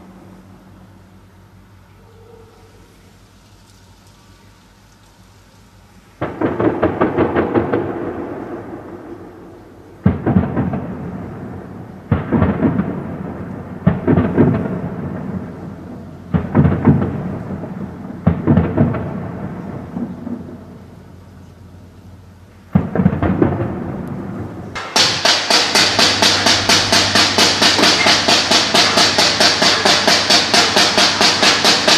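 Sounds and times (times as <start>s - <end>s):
gunshots echoing: 6.2s - 20.8s, 22.7s - 31.9s
fast steady drumbeat: 25.0s - 31.9s.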